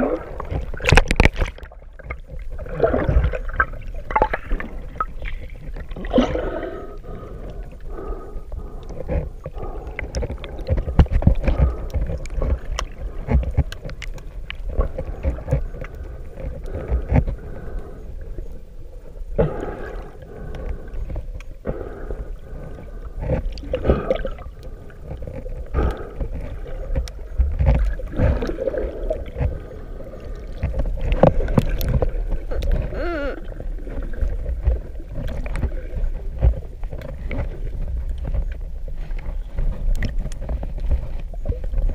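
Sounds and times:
wavering gurgle: 0.0 - 17.2, 21.6 - 38.6
muffled underwater rumble: 0.0 - 41.9
water bubbling: 0.0 - 41.9.

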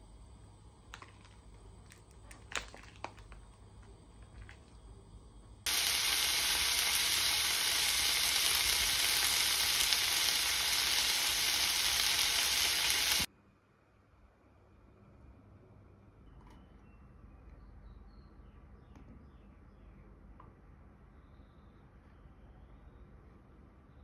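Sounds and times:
food sizzling in a frying pan: 5.7 - 13.3.

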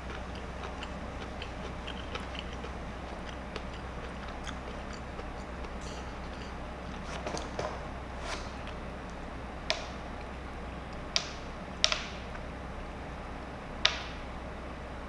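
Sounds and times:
person chewing lemon: 0.0 - 9.2
steady low hum: 0.0 - 15.0.

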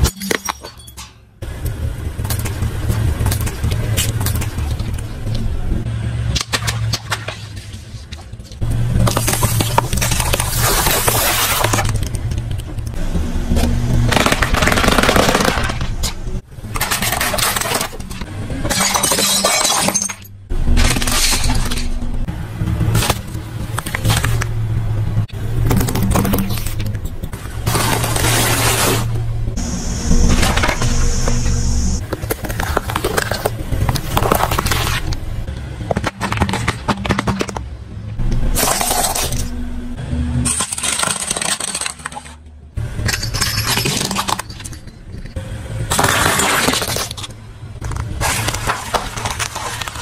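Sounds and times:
car rumble: 1.2 - 14.6, 20.0 - 40.6
pencils crushed by tyre: 40.4 - 42.4, 43.0 - 50.0.

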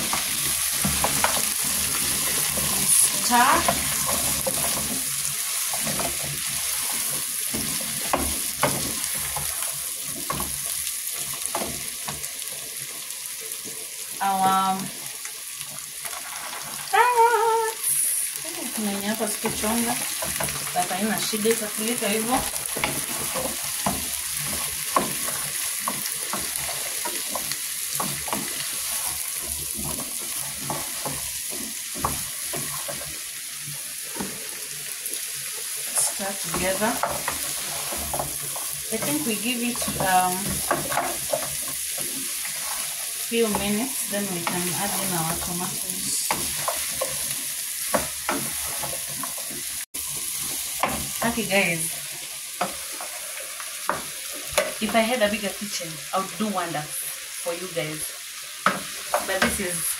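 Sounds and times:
food sizzling in a pot: 0.0 - 59.9
utensil scraping and knocking pot: 19.4 - 33.2, 35.9 - 49.7.

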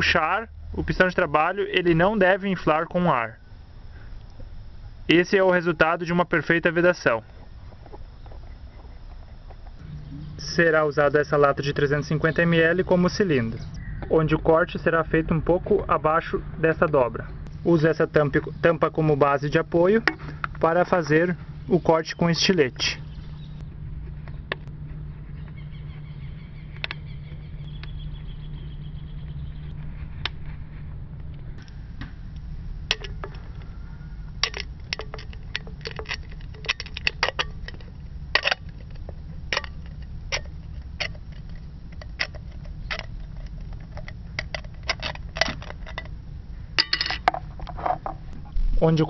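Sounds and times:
can metal clicking and crackling: 34.4 - 46.2.

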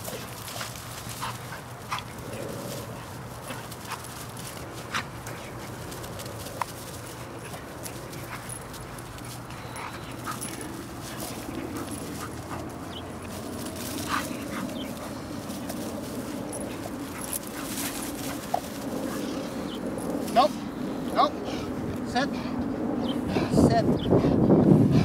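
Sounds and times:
steady rushing noise: 0.0 - 25.0
dogs whining and yipping: 7.5 - 20.2.

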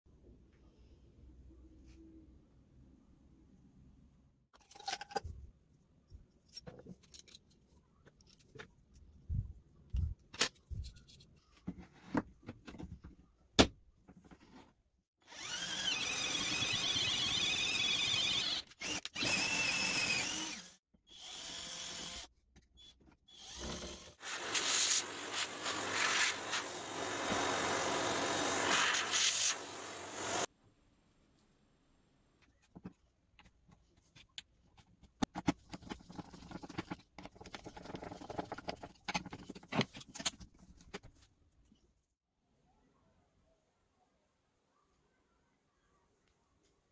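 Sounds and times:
power drill boring into wood: 15.2 - 22.3, 23.3 - 24.9.

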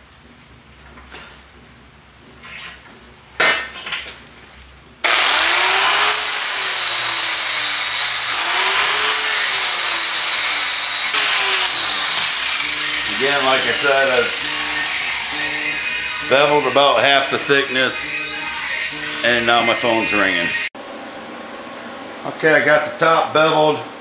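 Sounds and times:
angle grinder grinding steel: 5.0 - 20.7.

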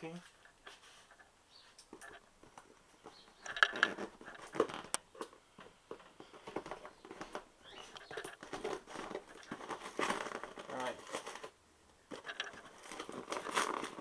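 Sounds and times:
hands handling cardboard box: 5.9 - 14.0
scraping at tape: 12.1 - 14.0.

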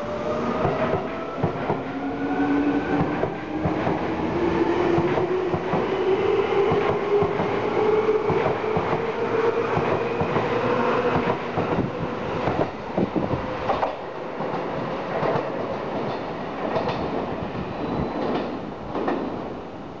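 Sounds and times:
train wheels clicking over rail joints: 13.7 - 17.2.

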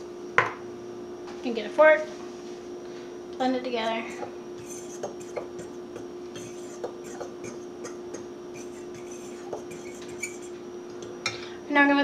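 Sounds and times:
fork clicking against bowl: 3.9 - 10.6.

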